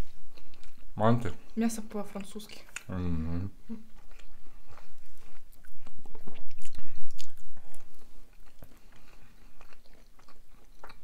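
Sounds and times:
chewing and biting pizza: 3.8s - 11.0s.

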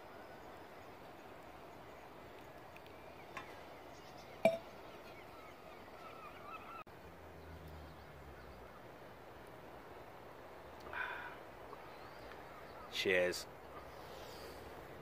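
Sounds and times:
faint bird calls: 0.0s - 6.8s, 10.8s - 14.9s.

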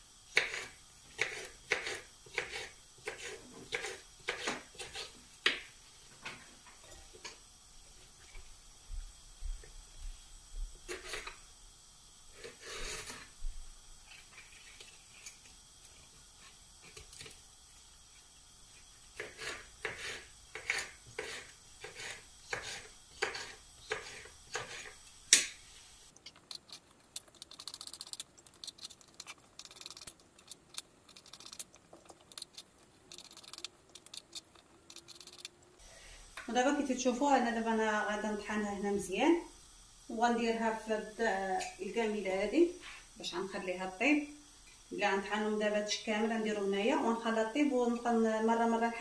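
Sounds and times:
knife chopping on wooden board: 19.2s - 25.5s.

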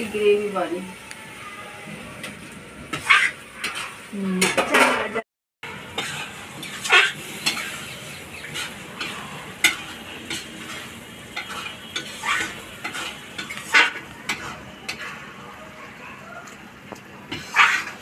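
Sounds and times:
curry sizzling: 0.0s - 18.0s
metal spoon scraping wok: 2.2s - 15.4s, 17.3s - 18.0s.

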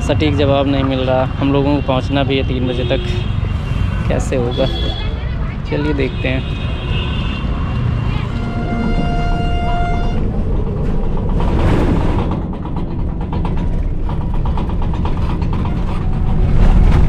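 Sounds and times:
vehicle engine and road rumble: 0.0s - 17.0s
fast rattle of clicks: 10.6s - 17.0s.

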